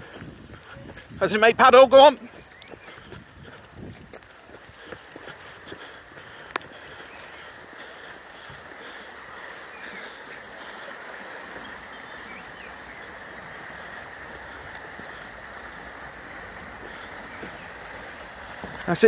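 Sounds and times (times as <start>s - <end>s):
river water rushing: 4.2s - 19.0s.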